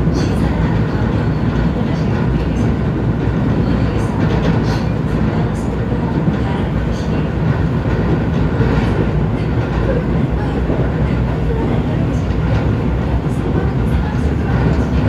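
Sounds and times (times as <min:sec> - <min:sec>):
train wheel-on-rail rumble: 0:00.0 - 0:15.0.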